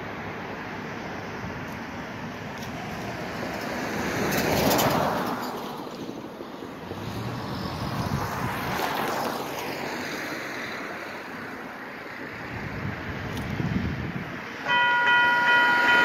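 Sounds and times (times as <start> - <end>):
cars driving past: 0.0 - 16.0.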